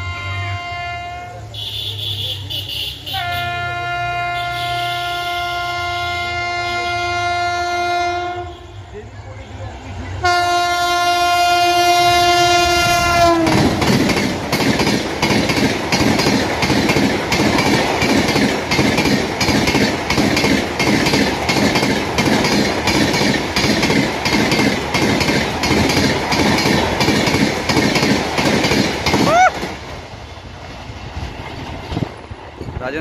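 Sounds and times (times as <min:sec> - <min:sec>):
locomotive horn blast: 0:00.0 - 0:09.1, 0:10.2 - 0:13.8
train wheels clattering on track: 0:12.6 - 0:33.0.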